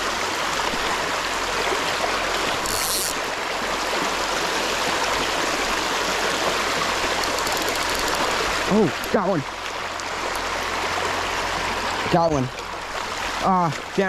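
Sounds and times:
water rushing over cobbles: 0.0s - 14.0s.

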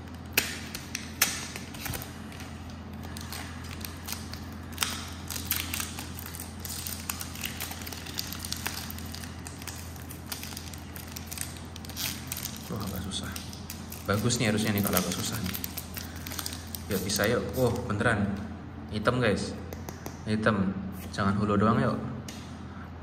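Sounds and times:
plastic foil packaging crinkling: 0.0s - 17.9s
steady low hum: 0.0s - 23.0s.

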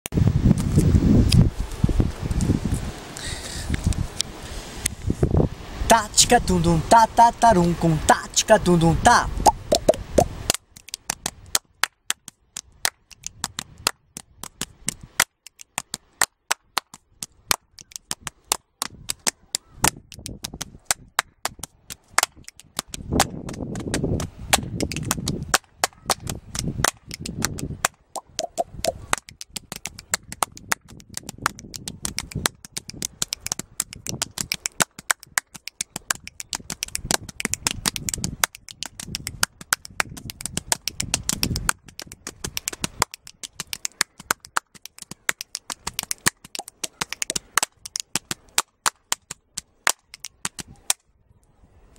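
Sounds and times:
body percussion claps and slaps: 9.5s - 51.0s.

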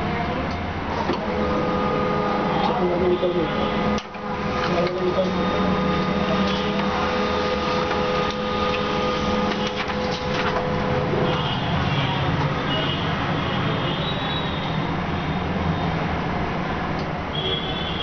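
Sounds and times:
machine humming: 0.5s - 13.3s.

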